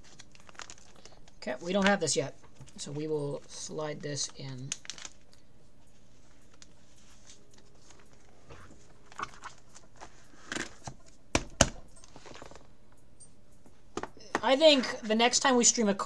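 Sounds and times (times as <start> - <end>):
plastic pages rustling: 0.0 - 12.7.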